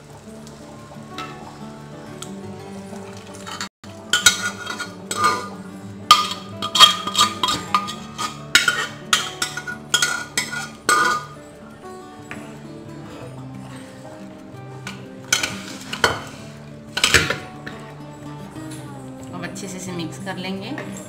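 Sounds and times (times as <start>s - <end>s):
soft background music: 0.0s - 21.0s
metal utensil knocking a steel pot: 4.2s - 5.5s, 6.1s - 11.3s.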